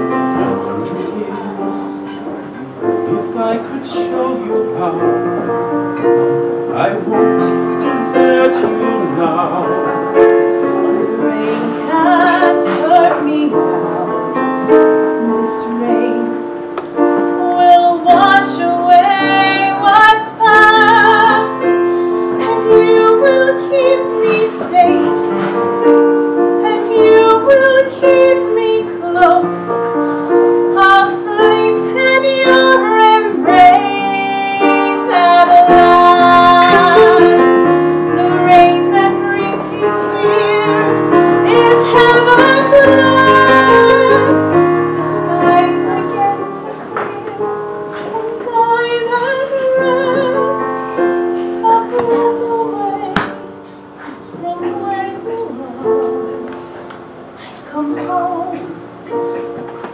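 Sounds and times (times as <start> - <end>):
piano accompaniment: 0.0 - 59.9
woman singing a ballad: 7.3 - 59.6.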